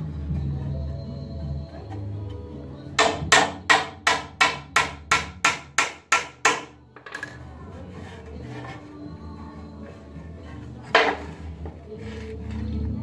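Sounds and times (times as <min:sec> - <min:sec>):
hammer striking nail into wood: 0:03.0 - 0:06.8.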